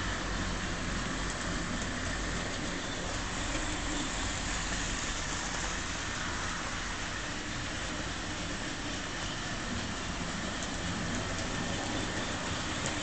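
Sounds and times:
model train running on track: 0.0s - 13.0s.

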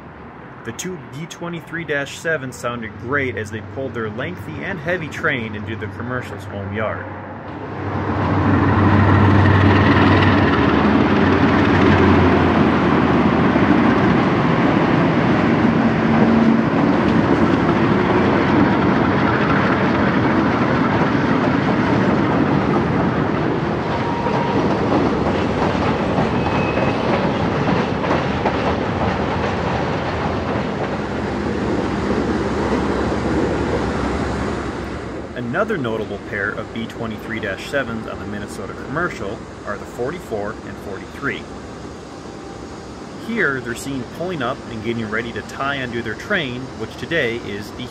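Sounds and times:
diesel locomotive engines under load: 0.0s - 47.9s
train wheels clacking over joints: 24.1s - 31.0s.

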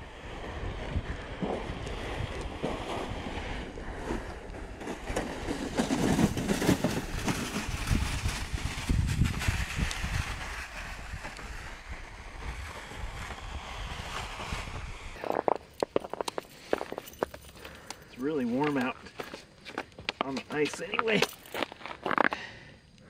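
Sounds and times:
wind buffeting microphone: 0.0s - 4.6s, 5.3s - 15.2s.

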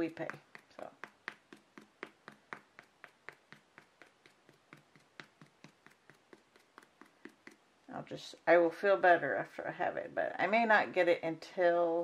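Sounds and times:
sponge dabbing taps: 0.0s - 7.7s.

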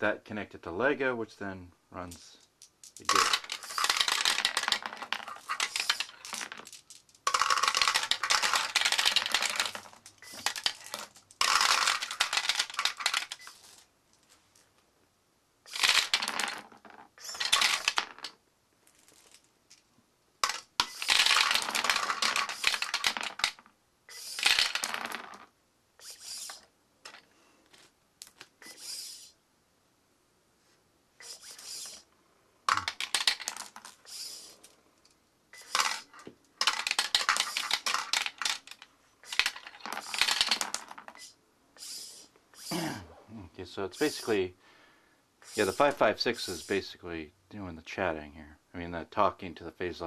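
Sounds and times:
marbles clattering down track: 2.9s - 13.4s, 15.7s - 18.4s, 20.4s - 23.7s, 24.3s - 25.5s, 32.7s - 34.0s, 35.6s - 41.2s.

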